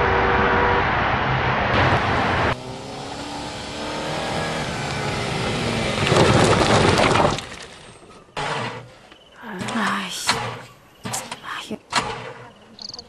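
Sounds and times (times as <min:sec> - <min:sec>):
car engine passing: 0:00.0 - 0:07.0.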